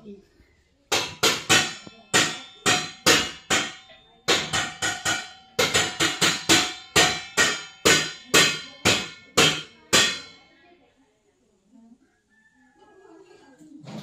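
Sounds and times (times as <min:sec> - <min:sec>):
hammer blows ringing: 0:00.9 - 0:10.6.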